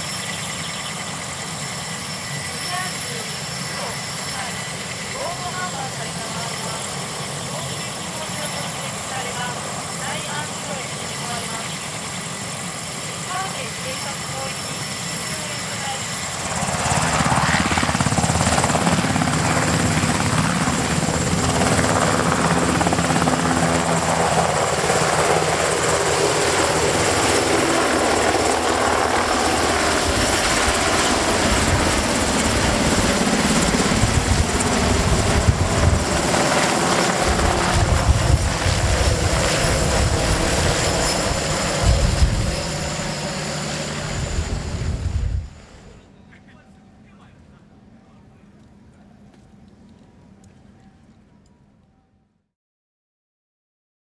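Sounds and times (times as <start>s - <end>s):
helicopter engines and rotor: 0.0s - 50.6s
gusts of low rumble: 44.1s - 45.6s.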